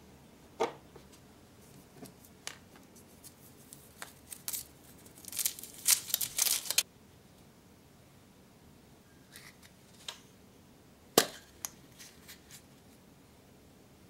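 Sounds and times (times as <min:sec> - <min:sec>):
foil wrapper crinkling and tearing: 0:03.2 - 0:06.8.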